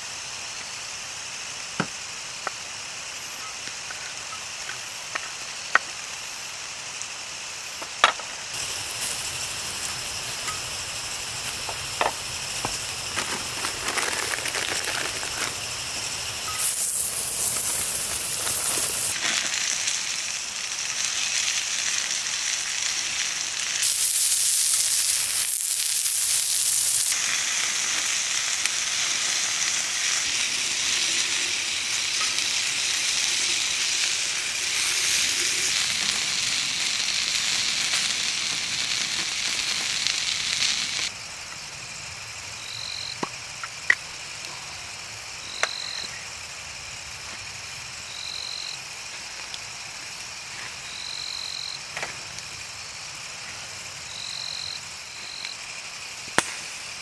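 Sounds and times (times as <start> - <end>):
meat sizzling on a grill: 0.0 - 57.0
sharp snaps: 56.4 - 56.8.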